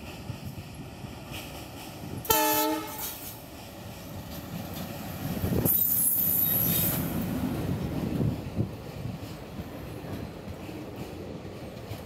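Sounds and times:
train rumbling past: 0:00.0 - 0:12.0
locomotive horn blast: 0:02.3 - 0:03.2
high wheel squeal: 0:05.7 - 0:07.0.

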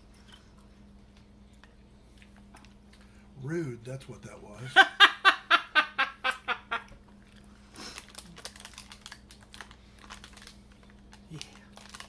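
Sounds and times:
woman laughing: 0:04.7 - 0:06.9.

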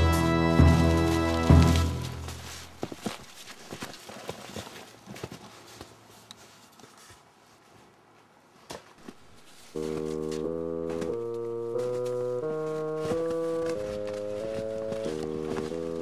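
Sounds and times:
organ music with sustained chords: 0:00.0 - 0:02.6, 0:09.7 - 0:16.0
footsteps crunching through snowy brush: 0:00.0 - 0:16.0.

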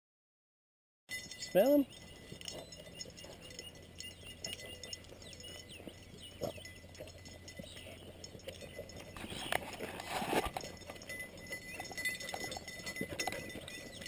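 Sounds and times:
faint high chirps: 0:01.1 - 0:09.6
rustling over dry grass: 0:01.2 - 0:14.0.

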